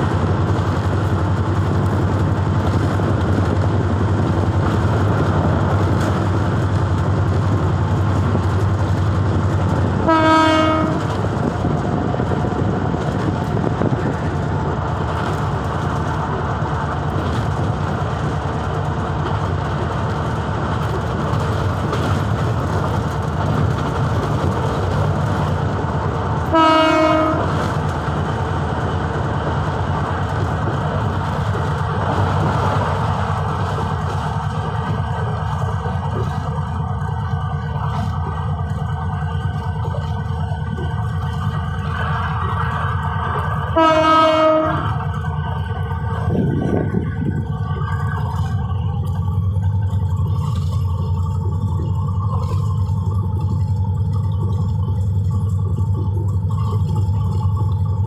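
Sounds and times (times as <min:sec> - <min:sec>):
locomotive engine drone: 0:00.0 - 0:58.0
wheels running on rails: 0:00.0 - 0:58.0
train horn blasts: 0:10.0 - 0:11.3, 0:26.4 - 0:27.8, 0:43.4 - 0:45.1.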